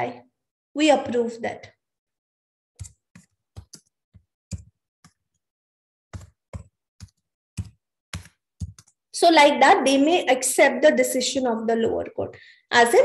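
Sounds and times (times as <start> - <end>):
typing on computer keyboard: 2.8 - 5.2, 6.1 - 9.0.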